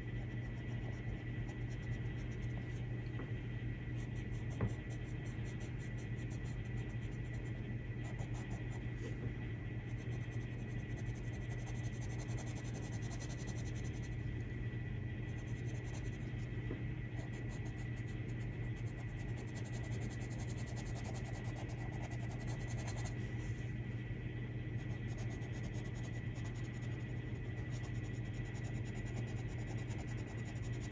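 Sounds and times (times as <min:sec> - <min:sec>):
steady low hum: 0:00.0 - 0:30.9
pencil scratching on paper: 0:09.9 - 0:14.2, 0:27.6 - 0:30.9.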